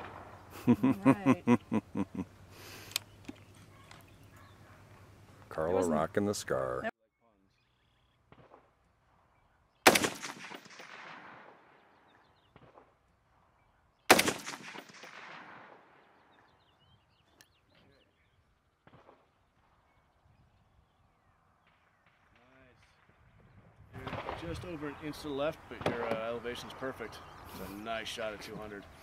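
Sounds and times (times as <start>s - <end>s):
rifle shots with echo: 0.0s - 0.4s, 9.8s - 11.9s, 14.1s - 16.2s, 24.0s - 24.8s.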